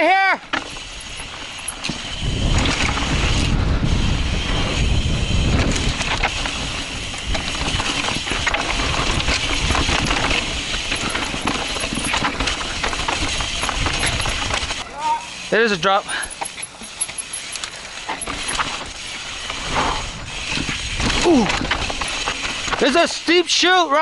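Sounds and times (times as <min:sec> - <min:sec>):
bike clattering on rough trail: 0:00.4 - 0:14.9, 0:16.0 - 0:24.0
wind rumble on microphone: 0:00.8 - 0:14.8, 0:18.3 - 0:22.8.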